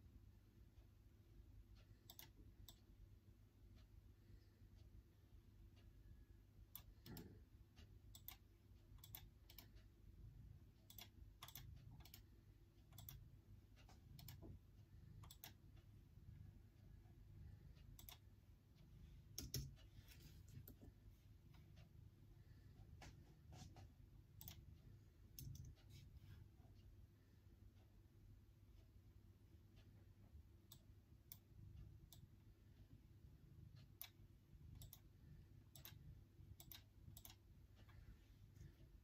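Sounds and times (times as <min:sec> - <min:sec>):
low room hum: 0:00.0 - 0:39.0
computer keyboard keystrokes: 0:10.9 - 0:12.3, 0:19.3 - 0:19.8, 0:25.3 - 0:25.8.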